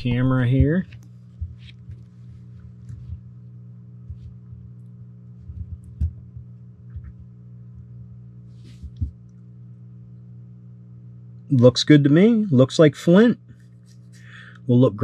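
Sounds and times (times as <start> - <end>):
low electrical hum: 0.0 - 15.0
thumps and knocks on cloth tabletop: 1.4 - 2.1, 5.4 - 7.3, 8.6 - 9.2.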